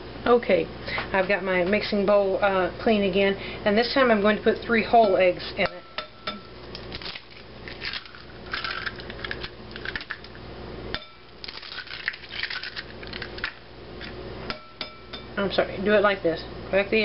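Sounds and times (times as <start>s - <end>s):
eggshells crackling: 6.7s - 10.4s, 11.3s - 14.2s.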